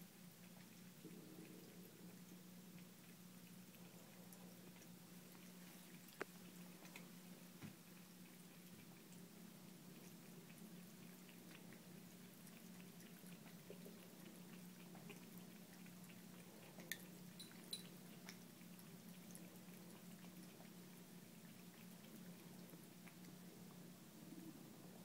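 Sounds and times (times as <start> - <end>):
cat lapping water: 0.0 - 25.0
steady low hum: 0.0 - 25.0.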